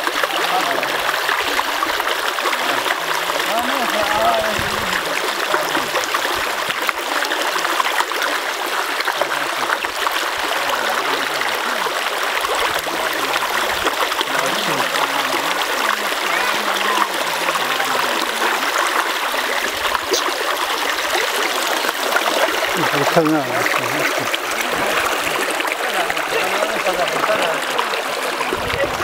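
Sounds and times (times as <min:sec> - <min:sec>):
brook splashing over pebbles: 0:00.0 - 0:29.0.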